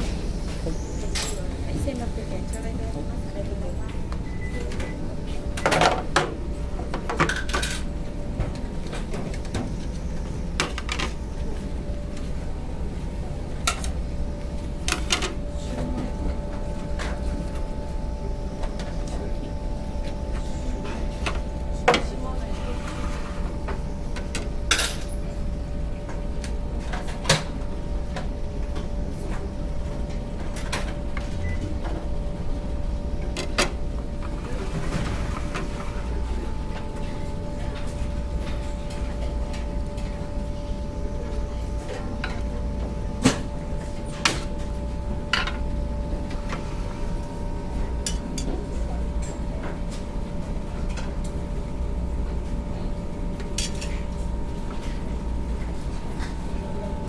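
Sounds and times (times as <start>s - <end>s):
utensils clinking on metal trays: 1.1s - 2.8s, 6.9s - 8.0s, 24.2s - 25.4s, 48.0s - 49.8s, 53.4s - 54.2s.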